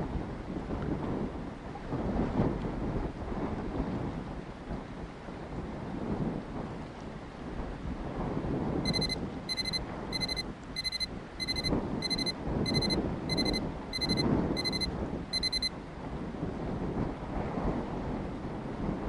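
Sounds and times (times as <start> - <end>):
timer alarm beeping: 8.9 - 15.7.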